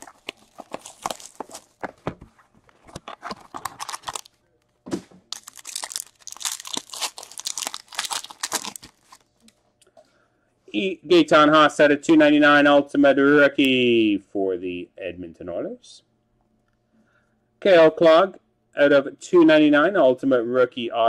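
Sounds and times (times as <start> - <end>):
foil wrapper crinkling: 0.0 - 2.0, 2.8 - 4.4, 5.3 - 9.5.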